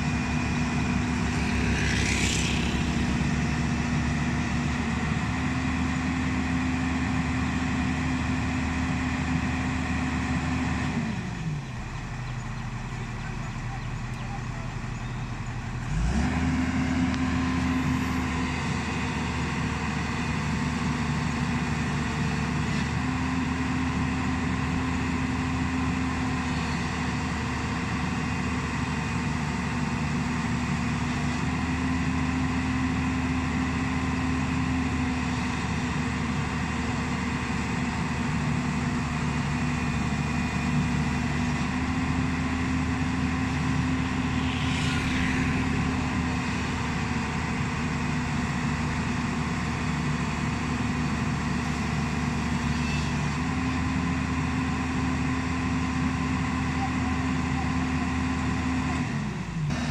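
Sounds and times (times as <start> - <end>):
excavator diesel engine high revs: 0.0 - 59.9.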